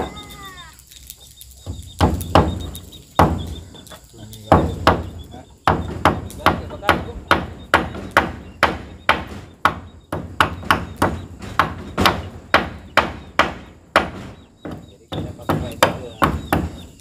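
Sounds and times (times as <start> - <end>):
hammer driving nails: 4.5 - 17.0.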